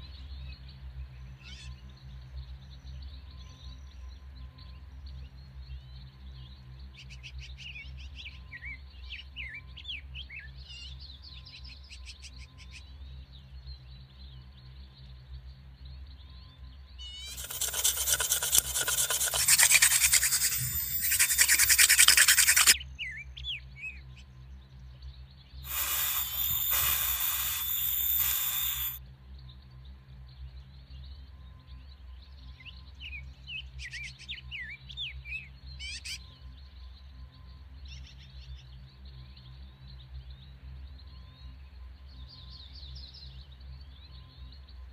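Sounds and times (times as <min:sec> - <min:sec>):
friction drill rasping: 0:17.3 - 0:22.8, 0:25.7 - 0:29.0.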